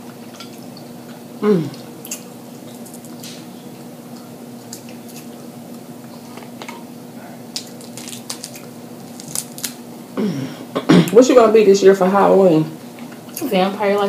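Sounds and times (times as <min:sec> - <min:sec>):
steady low hum: 0:00.0 - 0:14.0
crab shell cracking: 0:07.5 - 0:09.8.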